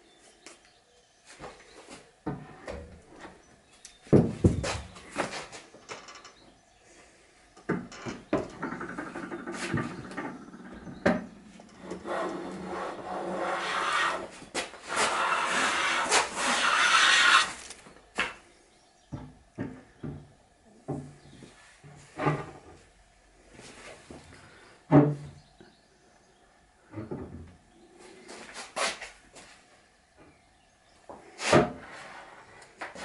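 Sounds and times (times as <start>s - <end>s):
hand plane shaving wood: 11.8s - 17.8s.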